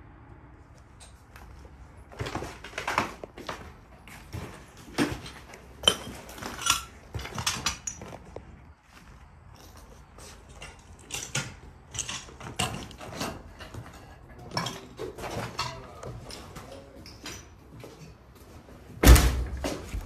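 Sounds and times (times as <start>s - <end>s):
footsteps crunching over debris: 1.2s - 14.5s
door shoved open with thud: 19.0s - 19.6s.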